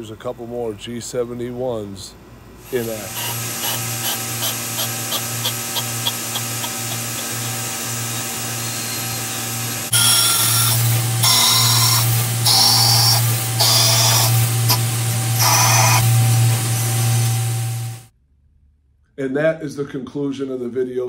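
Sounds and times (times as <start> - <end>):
lathe spindle humming: 2.7 - 18.0
high-pitched metal cutting noise: 2.7 - 18.1.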